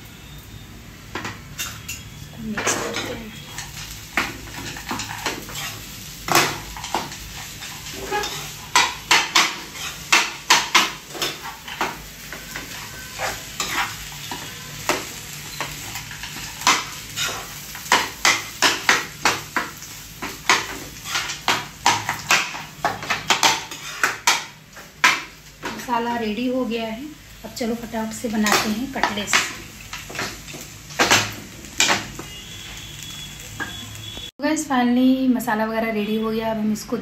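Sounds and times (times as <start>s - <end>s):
ladle scraping a pan: 6.8s - 8.9s.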